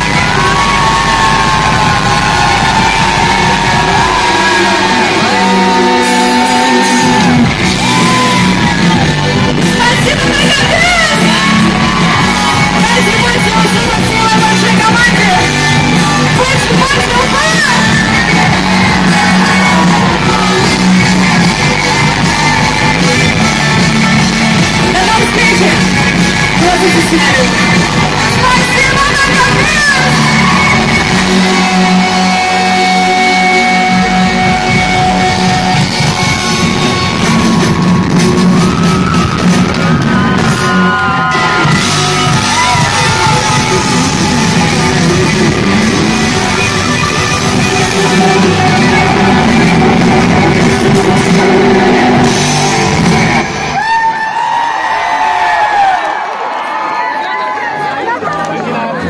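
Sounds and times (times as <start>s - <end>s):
pop-rock band playing: 0.0s - 54.9s
people yelling: 0.0s - 59.0s
person singing: 42.6s - 52.6s.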